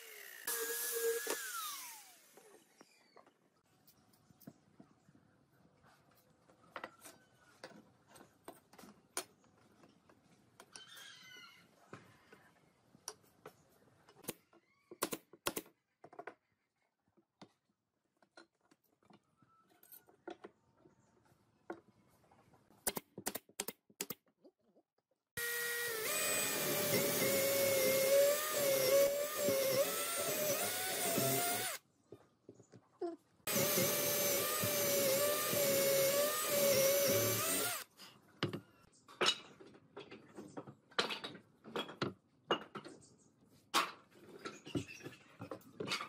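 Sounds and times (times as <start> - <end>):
electric drill boring through wood: 0.0 - 2.7, 25.4 - 31.8, 33.5 - 37.9.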